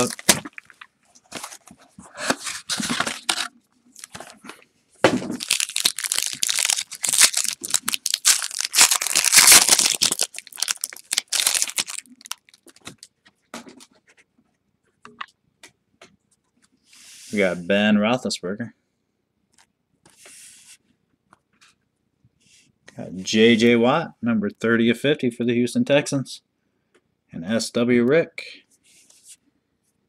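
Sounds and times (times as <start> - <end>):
wrapping crinkling and tearing: 0.0 - 1.6, 2.3 - 4.4, 5.4 - 13.2.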